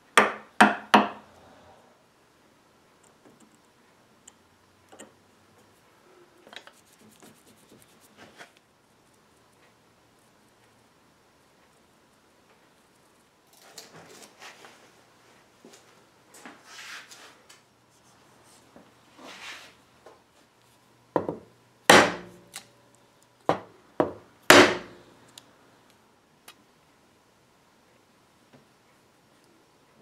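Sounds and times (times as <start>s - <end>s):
chisel knocking through wood: 0.2s - 1.2s, 24.0s - 24.9s
soft scratchy rubbing: 6.2s - 8.6s, 16.6s - 19.8s.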